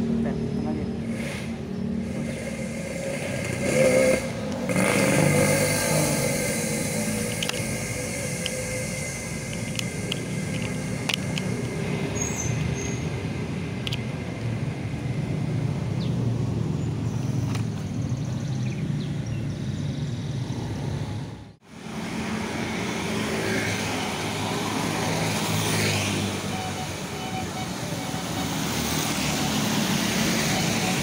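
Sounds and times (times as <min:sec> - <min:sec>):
cars and motorbikes passing: 0:00.0 - 0:31.0
tyres hissing on wet road: 0:01.0 - 0:13.5, 0:21.6 - 0:31.0.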